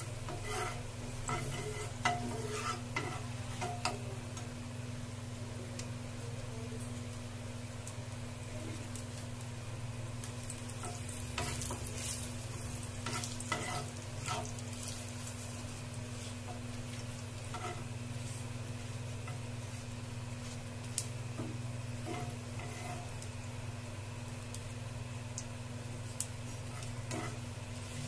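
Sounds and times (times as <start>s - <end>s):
spatula scraping pan: 0.0s - 4.0s, 10.8s - 18.5s, 22.0s - 23.2s, 26.6s - 28.0s
spices sizzling in hot oil: 0.0s - 28.0s.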